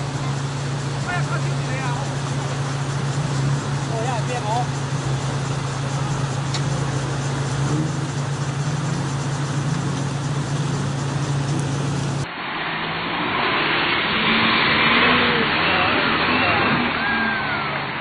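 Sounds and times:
car engine running: 0.0 - 12.5.

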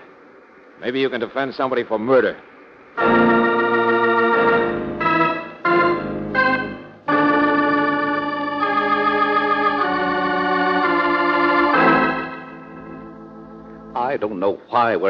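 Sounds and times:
dramatic organ chords: 3.0 - 15.0.

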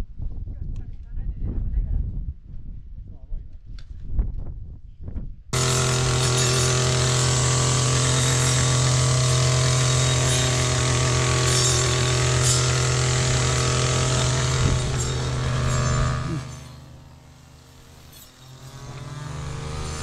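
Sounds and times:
brush cutter engine droning: 5.6 - 20.0.

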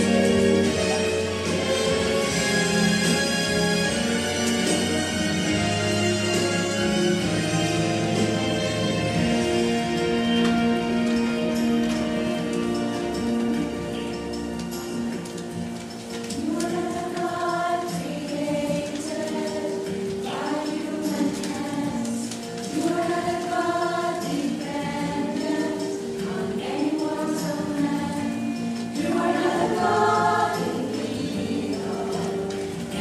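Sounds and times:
choir singing a slow hymn: 16.3 - 33.0.

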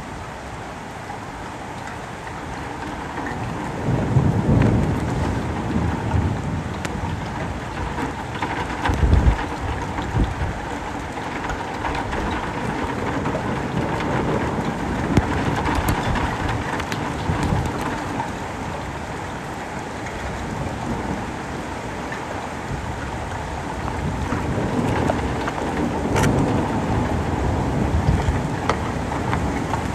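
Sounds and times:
steady rain falling: 0.0 - 29.9.

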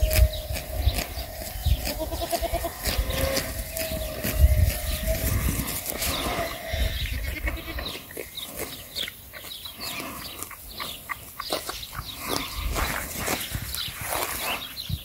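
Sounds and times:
wind rumbling on microphone: 0.0 - 7.9, 11.8 - 15.0
goat kid bleating: 0.0 - 8.2
goat chewing grass: 0.0 - 14.8.

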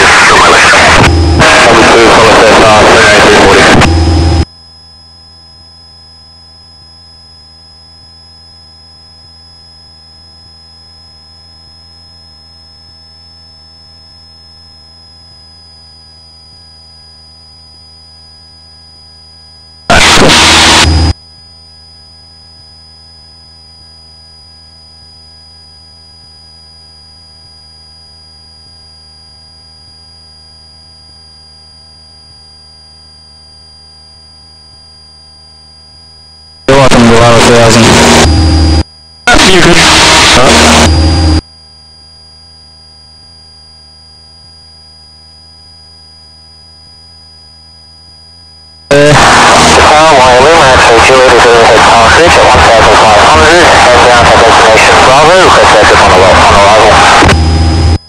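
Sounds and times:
loud rush of noise: 0.0 - 4.5, 19.9 - 20.9, 36.7 - 38.3, 39.3 - 41.4, 48.9 - 58.0
whining tones: 0.0 - 4.5, 9.2 - 21.2, 35.8 - 41.4, 47.7 - 58.0
aircraft cabin drone: 48.9 - 58.0.

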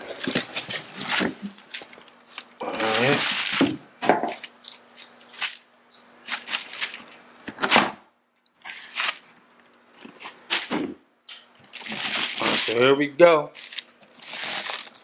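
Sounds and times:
tissue paper rustling: 11.7 - 12.9, 13.5 - 15.0.

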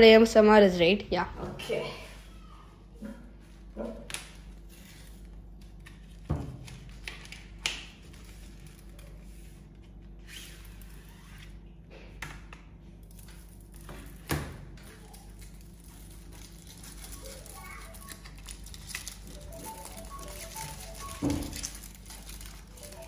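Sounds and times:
rustling of card and foil: 4.1 - 11.1, 14.8 - 23.0.

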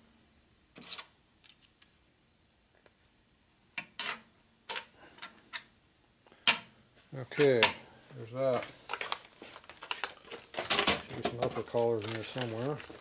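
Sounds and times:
small metal parts clicking on workbench: 1.4 - 2.0.

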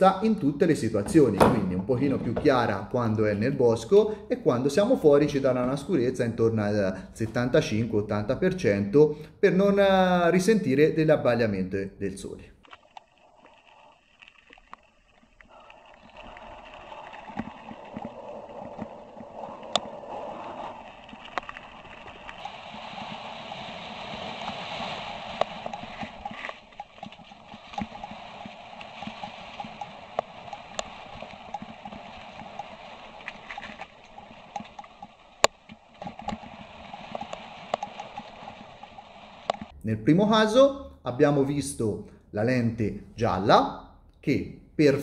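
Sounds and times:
bike rattling and knocking: 0.9 - 2.8
bike tyres crunching on gravel: 12.8 - 39.7.

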